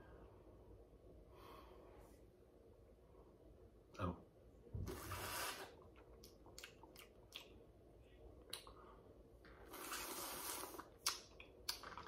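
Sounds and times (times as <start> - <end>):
slurping: 4.8 - 7.5, 9.4 - 12.0.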